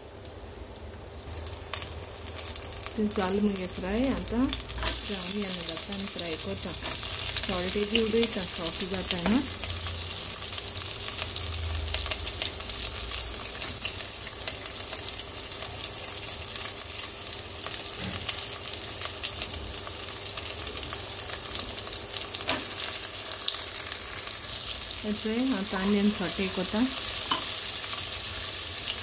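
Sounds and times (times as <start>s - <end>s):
onions and spices sizzling in oil: 0.0s - 29.0s.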